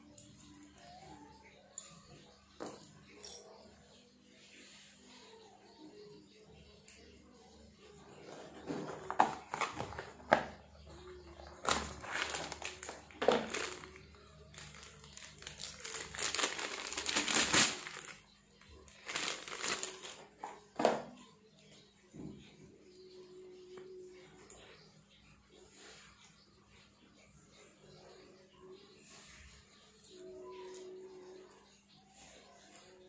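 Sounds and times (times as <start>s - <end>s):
plastic wrapping crinkling: 8.3s - 10.5s, 11.1s - 20.6s.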